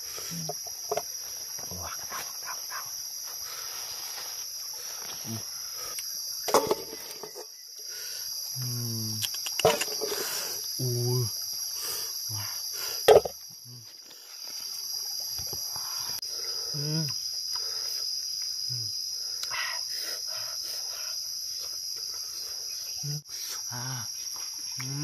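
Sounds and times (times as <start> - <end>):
jungle insects droning: 0.0 - 25.0
eating noises: 9.1 - 10.6.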